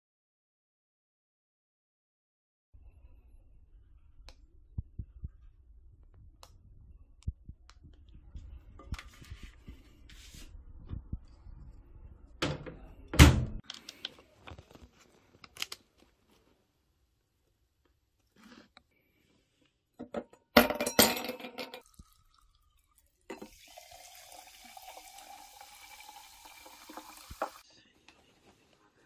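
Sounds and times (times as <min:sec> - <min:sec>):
faint low hum: 0:02.8 - 0:13.6.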